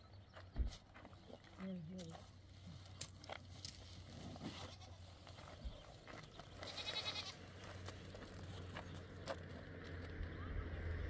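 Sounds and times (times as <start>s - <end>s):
goat bleating: 4.5s - 5.1s, 6.6s - 7.4s.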